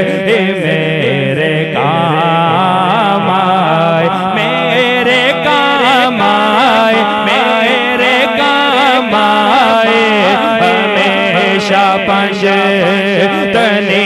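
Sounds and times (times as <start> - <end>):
man singing into a microphone: 0.0 - 14.0.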